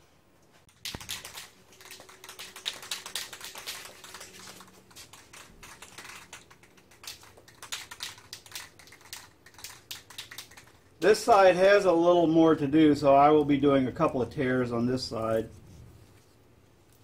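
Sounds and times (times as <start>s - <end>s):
vinyl stencil clicking and crackling: 0.7s - 10.8s.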